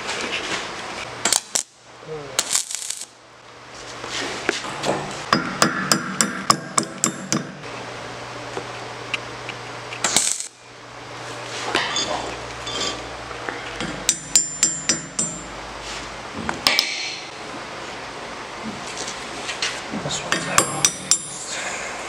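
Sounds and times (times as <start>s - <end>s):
hammer striking steel teeth: 5.3s - 7.6s, 13.8s - 15.5s.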